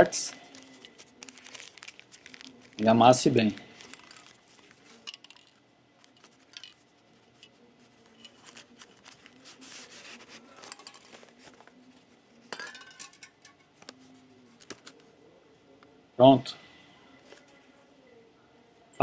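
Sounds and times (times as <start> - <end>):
newspaper rustling and crinkling: 0.3 - 12.5.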